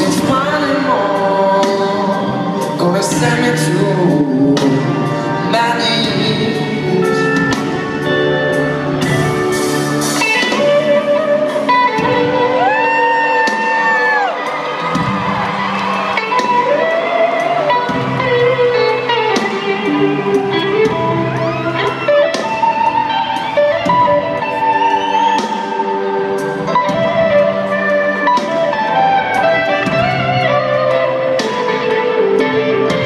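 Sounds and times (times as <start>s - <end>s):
drums keeping a beat: 0.0s - 33.0s
electric guitar bending notes: 0.0s - 33.0s.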